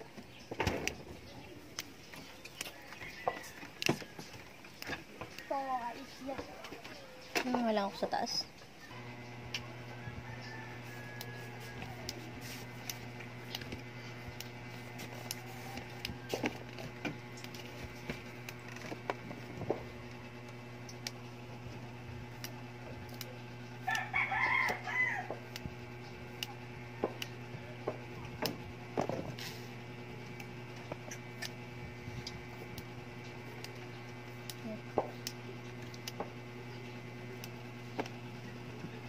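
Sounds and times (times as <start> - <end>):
steady low hum: 0.0 - 39.0
bean pods snapping: 1.6 - 5.5, 22.3 - 27.4, 30.2 - 36.6
rooster crowing: 2.6 - 4.3, 9.6 - 12.6, 15.3 - 16.6, 23.8 - 25.6.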